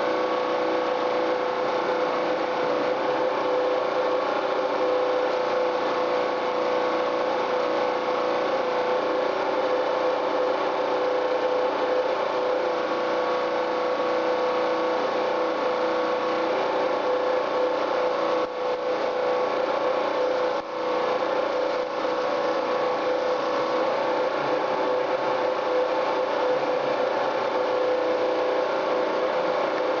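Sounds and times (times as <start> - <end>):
machine hum: 0.0 - 30.0
paint spray gun hissing: 20.3 - 24.1.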